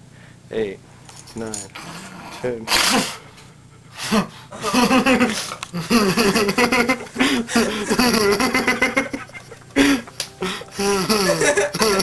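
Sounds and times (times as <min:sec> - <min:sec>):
man laughing and vocalizing: 0:04.1 - 0:12.0.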